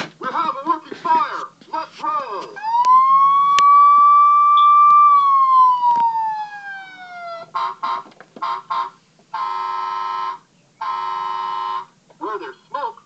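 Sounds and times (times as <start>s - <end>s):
toy electronic siren: 2.6s - 11.9s
electronic horn toots: 7.4s - 12.0s.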